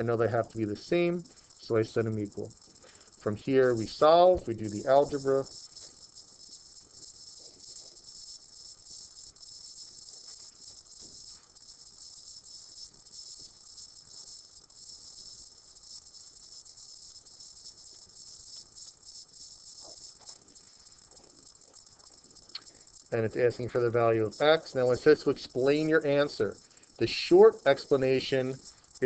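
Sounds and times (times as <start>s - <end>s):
high-pitched background hiss: 0.0s - 29.0s.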